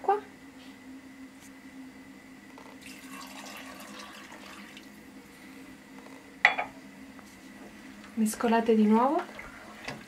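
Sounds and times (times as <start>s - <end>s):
water pouring into a pot: 2.8s - 4.9s.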